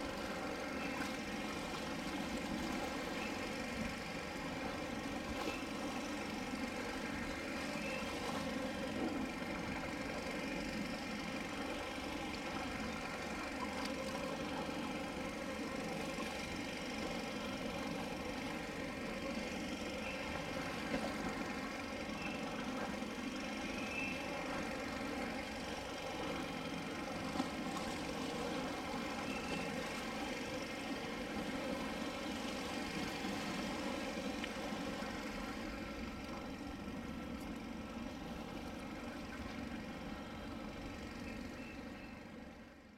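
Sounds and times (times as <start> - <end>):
steady engine-like drone: 0.0 - 42.9
faint short high chirps: 23.8 - 24.3.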